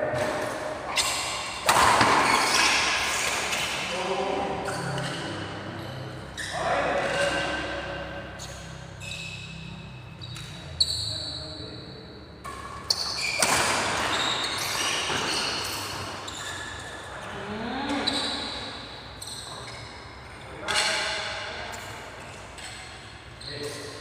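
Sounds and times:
racket hitting shuttlecock: 0:00.1 - 0:03.9, 0:12.4 - 0:16.2
players' voices: 0:03.2 - 0:08.4.

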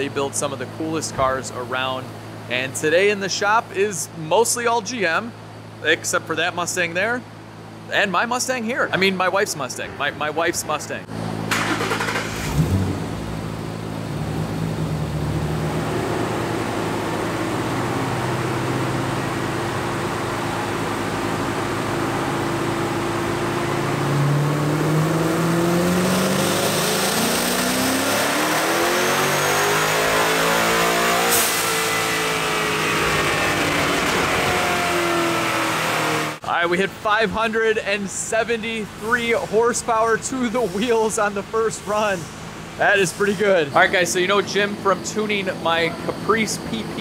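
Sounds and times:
engine revving on dyno: 0:11.5 - 0:36.4.

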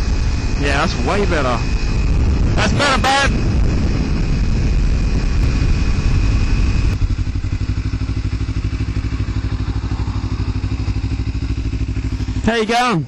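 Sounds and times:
wind and road rush: 0:00.0 - 0:13.0
motorcycle engine idling: 0:03.4 - 0:13.0.

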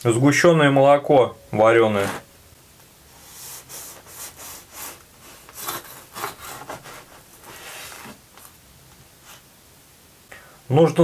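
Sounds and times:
knife sawing through bread: 0:03.3 - 0:08.2.

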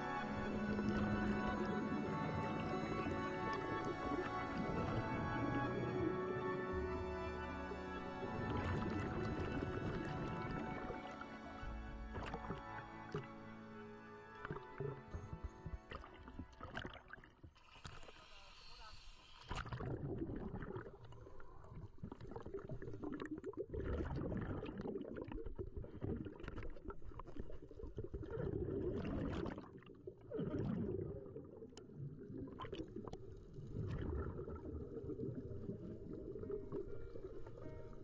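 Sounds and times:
muffled underwater noise: 0:00.0 - 0:23.2.

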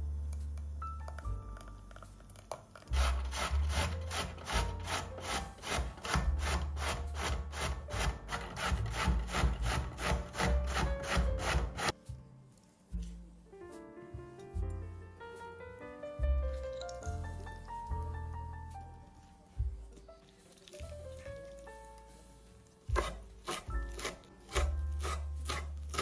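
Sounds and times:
kitchen tool scraping food: 0:02.4 - 0:12.0, 0:22.9 - 0:26.0.

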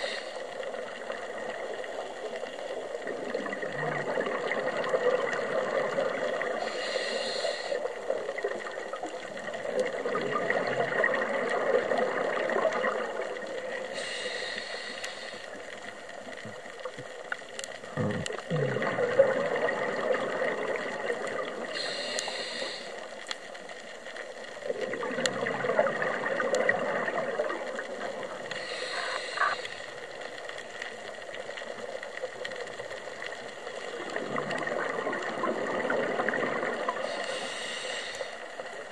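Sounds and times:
regulator inhale hiss: 0:00.0 - 0:00.8, 0:06.4 - 0:08.2, 0:13.7 - 0:15.9, 0:21.7 - 0:23.3, 0:28.4 - 0:30.1, 0:36.9 - 0:38.9
exhaust bubbling: 0:18.0 - 0:19.6.

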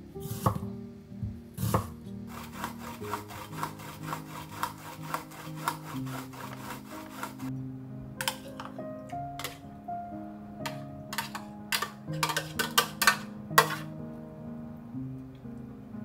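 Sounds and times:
knife cutting onion on wooden board: 0:00.2 - 0:00.7, 0:01.6 - 0:07.5, 0:13.6 - 0:13.9
onion rasping on grater: 0:01.6 - 0:07.5.

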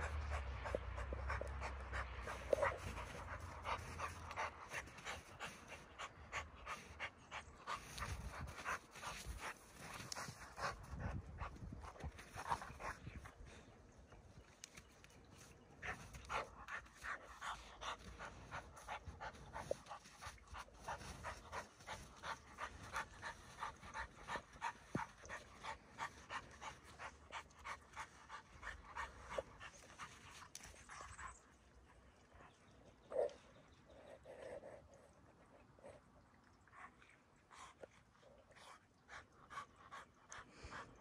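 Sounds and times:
dog panting: 0:00.0 - 0:13.7, 0:15.4 - 0:31.4.

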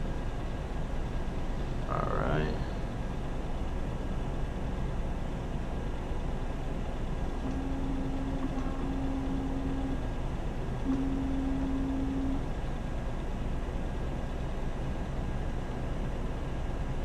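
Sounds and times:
machine and room hum: 0:00.0 - 0:17.0
eye scanner motor humming: 0:07.4 - 0:12.7.

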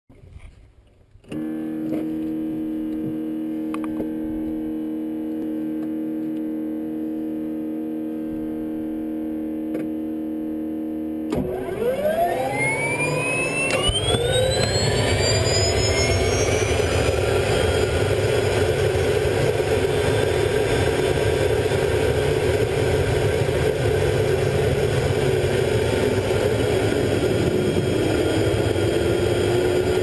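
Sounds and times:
steady drone: 0:10.2 - 0:30.0
helicopter turbine spooling up: 0:11.5 - 0:30.0.

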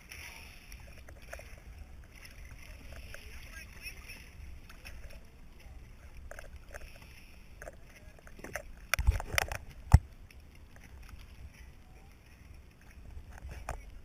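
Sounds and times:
water lapping and splashing: 0:00.0 - 0:14.0.

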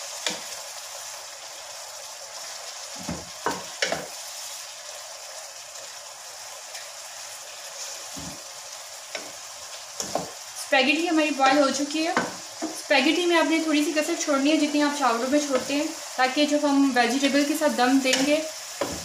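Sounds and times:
vegetables sizzling in a wok: 0:00.0 - 0:19.0.

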